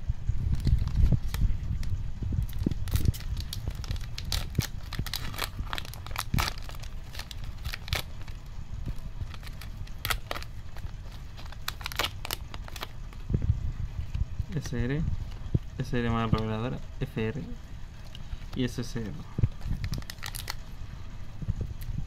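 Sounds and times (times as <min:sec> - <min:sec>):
wrapper tearing and crinkling: 0:00.5 - 0:08.4, 0:09.2 - 0:13.0, 0:19.6 - 0:20.6.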